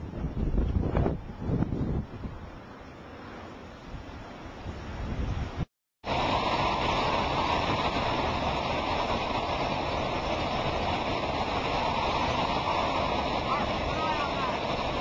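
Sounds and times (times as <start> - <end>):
hurricane-force wind: 0.0 - 15.0
driving rain: 6.0 - 15.0.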